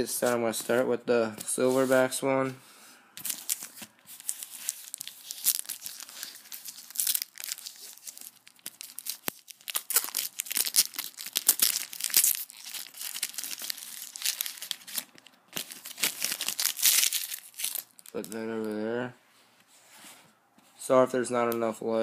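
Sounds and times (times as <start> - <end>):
foil pack tearing and crinkling: 3.2 - 18.3.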